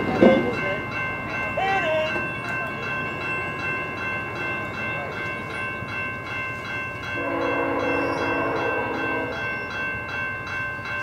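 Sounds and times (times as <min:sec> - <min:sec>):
level crossing bell ringing: 0:00.0 - 0:11.0
train horn: 0:07.2 - 0:09.6.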